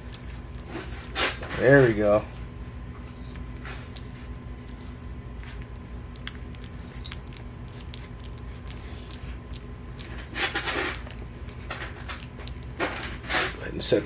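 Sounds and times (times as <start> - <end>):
puppy eating wet food: 0.0 - 14.0
steady low hum: 0.0 - 14.0.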